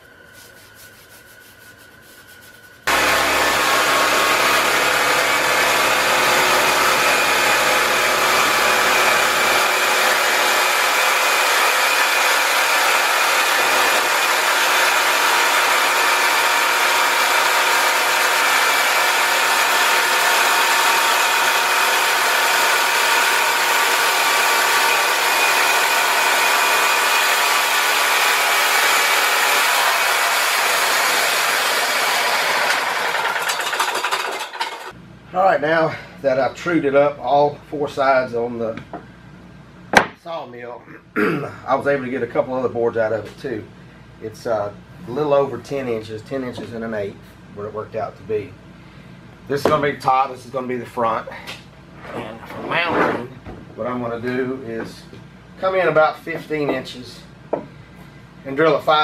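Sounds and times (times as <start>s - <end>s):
faint brushing: 0.0s - 2.9s
sawmill engine droning: 2.8s - 35.0s.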